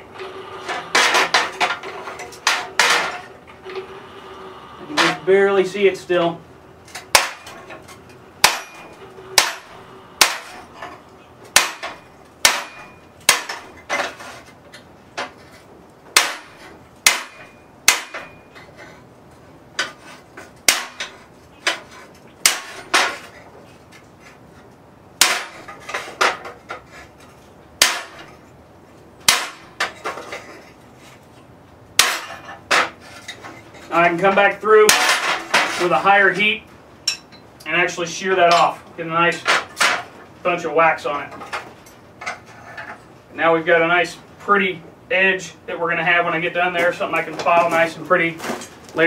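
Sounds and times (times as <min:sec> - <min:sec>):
hammer striking metal: 0:06.9 - 0:13.8, 0:16.2 - 0:18.5, 0:29.3 - 0:29.9.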